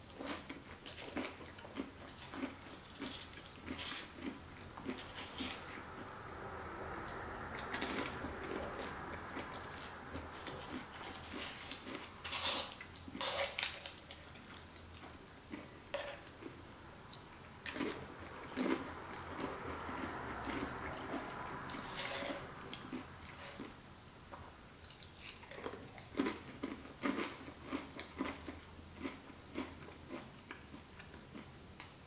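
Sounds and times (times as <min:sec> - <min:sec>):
crunching chips: 0:24.8 - 0:30.7.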